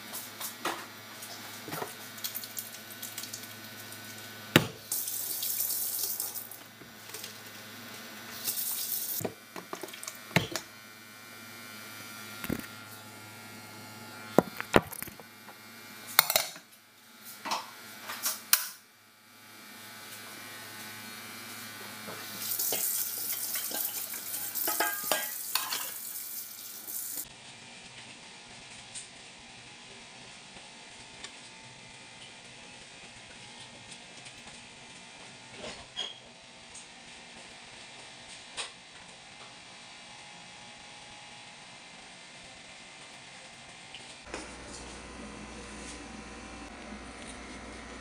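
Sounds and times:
tap running water: 0:04.6 - 0:06.7
metal pot and lid clanking: 0:23.5 - 0:26.0.

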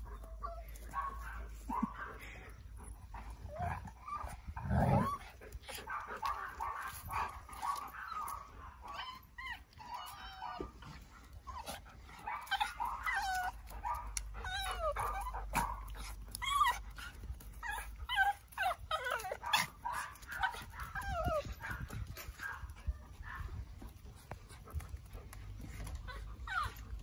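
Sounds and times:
dog whining cries: 0:03.5 - 0:05.2, 0:06.9 - 0:10.9, 0:12.3 - 0:22.7, 0:25.8 - 0:27.0.

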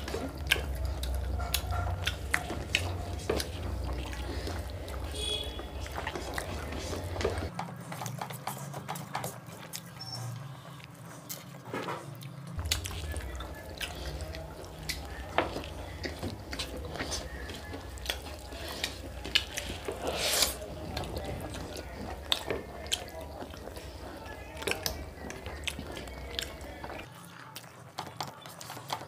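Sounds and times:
lip smacks: 0:00.0 - 0:07.5, 0:12.2 - 0:29.0
wet chewing: 0:00.0 - 0:29.0
fingers squishing rice: 0:12.6 - 0:27.1.

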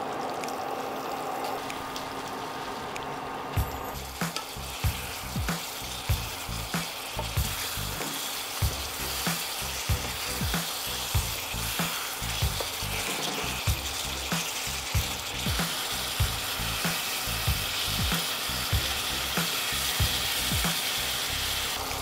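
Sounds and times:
chicken sizzling in sauce: 0:00.0 - 0:22.0
wooden spatulas stirring: 0:03.6 - 0:17.6
low thumping beat: 0:03.6 - 0:21.4.

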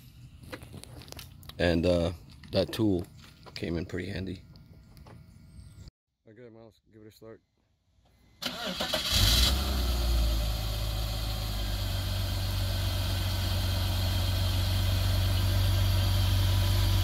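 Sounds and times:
car engine idling: 0:08.4 - 0:17.0.

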